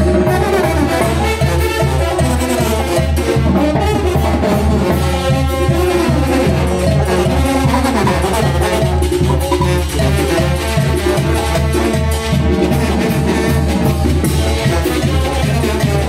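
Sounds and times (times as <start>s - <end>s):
brass band playing: 0.0s - 16.0s
drums: 0.0s - 16.0s
pulsing bass line: 6.9s - 10.5s.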